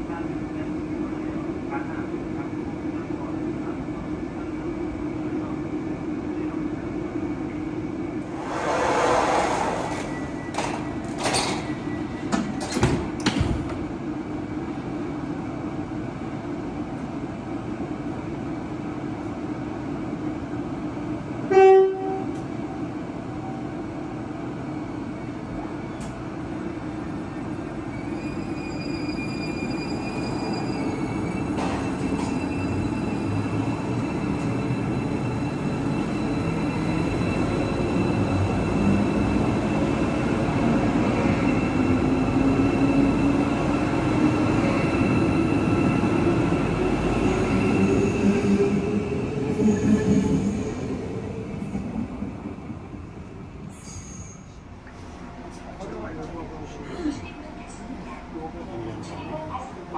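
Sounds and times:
train clunks: 8.9s - 13.9s, 31.5s - 32.5s
train horn blast: 21.5s - 22.4s.

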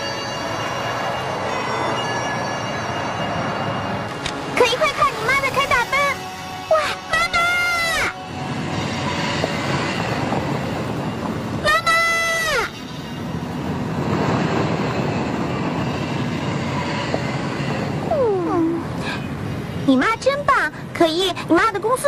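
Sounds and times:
child shouting: 4.7s - 8.2s, 11.6s - 12.8s.

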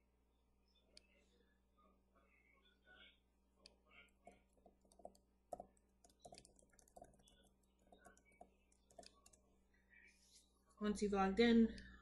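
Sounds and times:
typing on keyboard: 4.2s - 9.5s.

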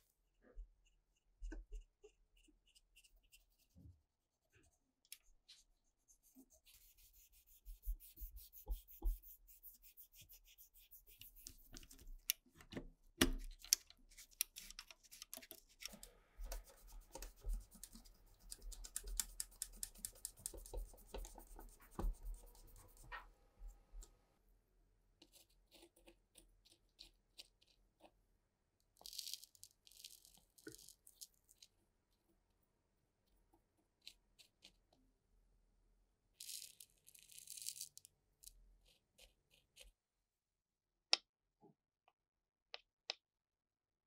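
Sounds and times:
cotton swab scrubbing: 4.5s - 12.3s, 14.1s - 23.3s.

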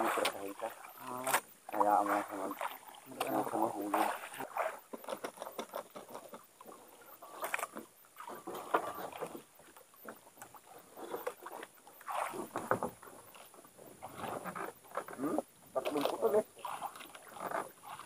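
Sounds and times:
water lapping against boat hull: 0.0s - 18.0s.

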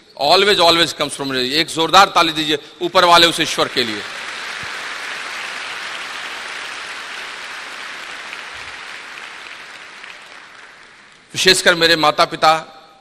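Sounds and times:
audience applauding: 3.6s - 11.3s.

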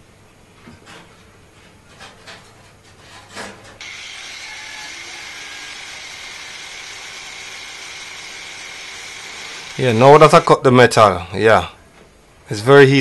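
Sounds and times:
faint clicks and scrapes: 0.6s - 3.8s
angle grinder cutting steel: 3.8s - 10.5s.

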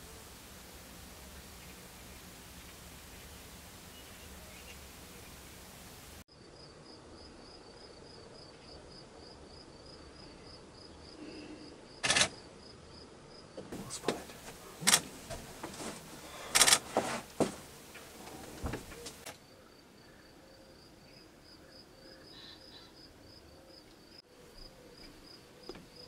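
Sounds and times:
starlings calling: 1.2s - 6.1s
cricket chirping: 6.3s - 26.0s.

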